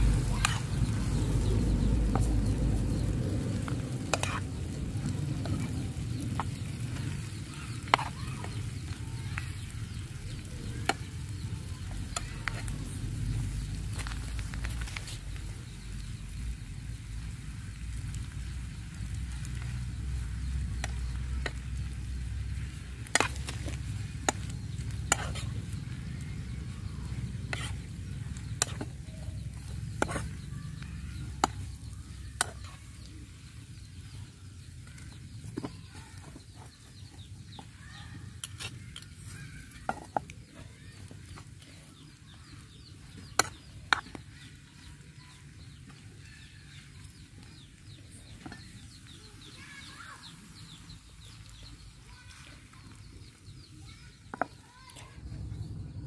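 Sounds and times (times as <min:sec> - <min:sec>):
low rumble: 0:00.0 - 0:06.2, 0:55.1 - 0:56.0
faint sizzling: 0:00.0 - 0:55.9
metal spoon scraping frying pan: 0:04.1 - 0:04.5, 0:23.1 - 0:25.7, 0:27.1 - 0:29.0.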